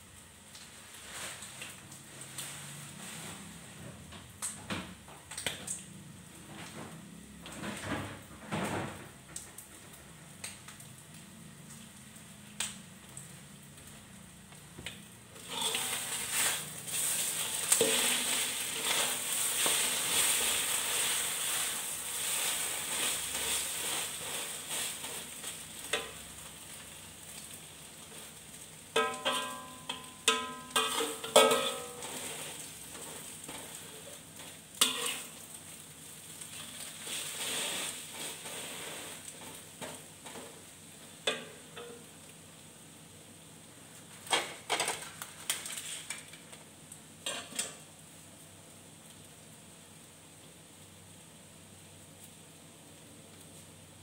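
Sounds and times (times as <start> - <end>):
loud sizzle: 0.0 - 54.0
metal spatula scraping wok: 15.4 - 26.2, 29.0 - 35.4, 36.5 - 40.5, 47.2 - 47.7
spatula striking wok ringing: 29.0 - 32.2.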